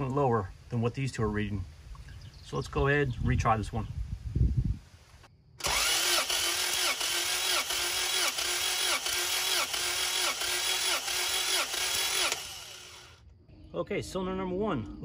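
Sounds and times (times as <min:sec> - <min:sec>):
starter motor cranking engine: 0:05.6 - 0:13.2.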